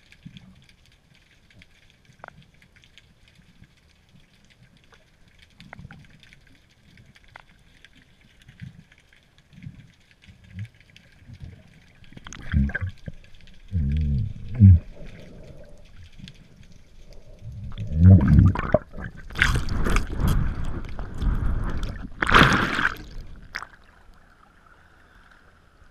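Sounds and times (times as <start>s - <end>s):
muffled underwater sloshing and bubbling: 0.0s - 25.9s
water splashing: 5.0s - 24.6s
low underwater thumps: 17.6s - 23.6s.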